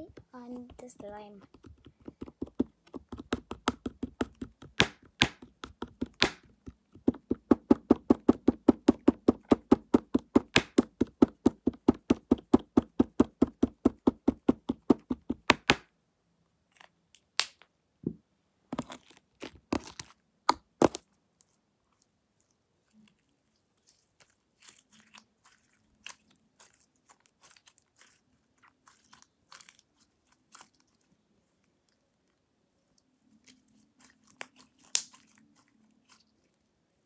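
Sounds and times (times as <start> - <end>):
slime mixing knocks: 0.0 - 15.8.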